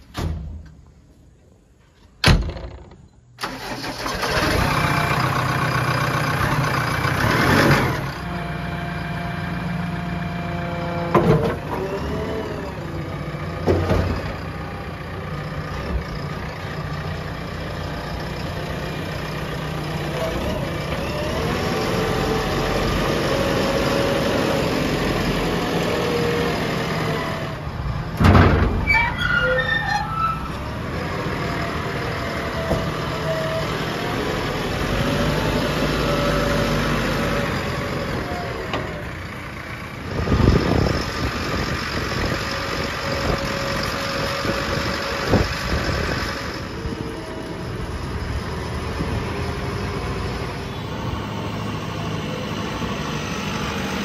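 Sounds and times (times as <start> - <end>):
diesel engine starting and running: 0.0 - 54.0
machine clunks: 28.2 - 28.9.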